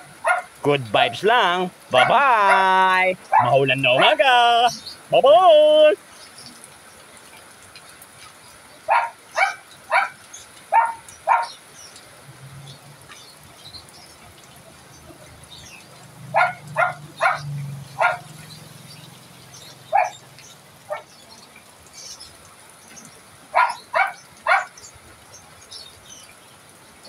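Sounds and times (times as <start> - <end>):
dog barking: 0.0 - 0.6, 2.0 - 2.7, 3.3 - 4.1, 8.9 - 11.6, 16.3 - 18.3, 19.9 - 20.2, 20.9 - 21.1, 23.5 - 24.8
steady falling rain: 0.0 - 27.0.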